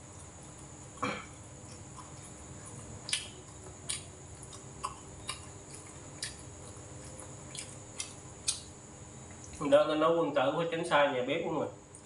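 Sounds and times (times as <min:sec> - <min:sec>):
man chewing food: 0:00.0 - 0:09.6.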